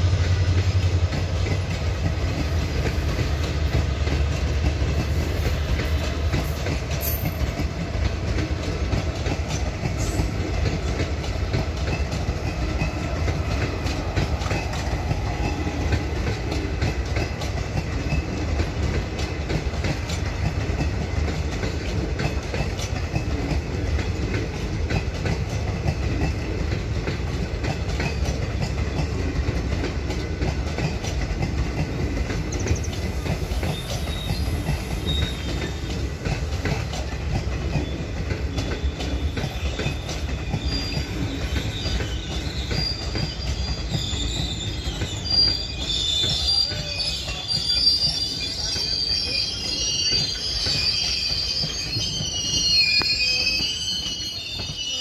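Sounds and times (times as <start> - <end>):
train rumbling past: 0.0 - 55.0
wheels clattering over rail joints: 0.6 - 53.7
high wheel squeal: 32.7 - 36.0, 37.8 - 55.0.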